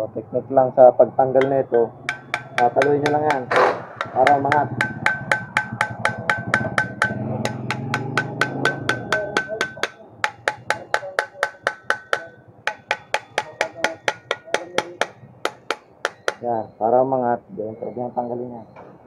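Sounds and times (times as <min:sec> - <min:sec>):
metal tapping on clutch: 0:01.4 - 0:16.5.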